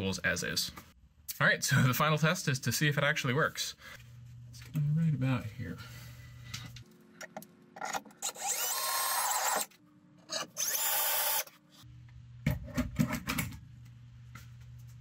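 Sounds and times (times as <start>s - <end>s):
cordless drill driving screws: 8.2s - 9.7s, 10.3s - 11.5s.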